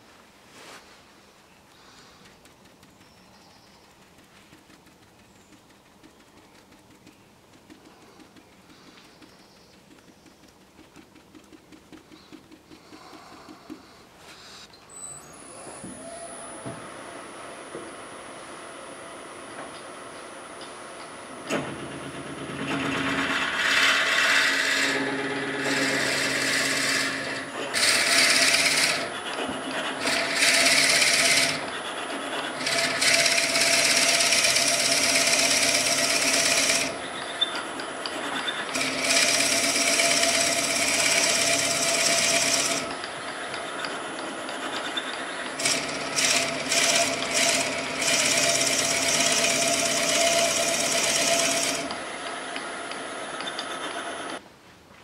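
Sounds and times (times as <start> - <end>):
lathe hum: 15.3 - 54.4
drill bit boring into wood: 21.8 - 54.4.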